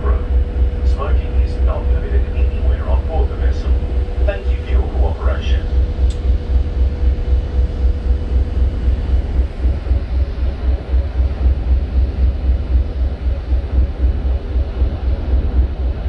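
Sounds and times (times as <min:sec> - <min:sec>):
ferry engines rumbling: 0:00.0 - 0:09.4
faint hum: 0:00.0 - 0:16.0.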